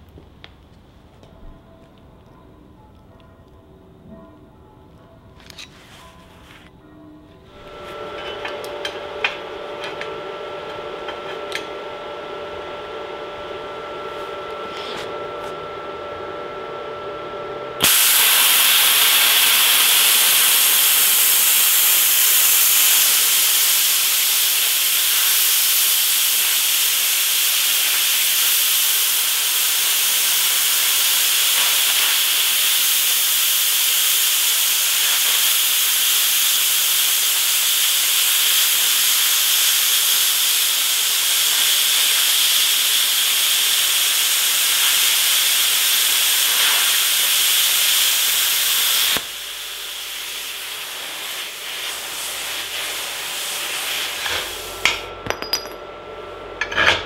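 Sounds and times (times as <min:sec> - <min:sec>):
plasma cutter arc hissing: 0:17.8 - 0:55.0.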